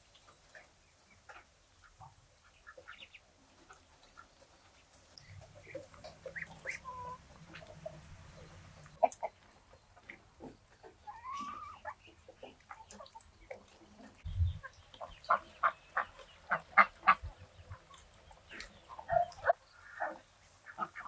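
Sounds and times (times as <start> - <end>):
fowl calling: 6.2 - 8.0.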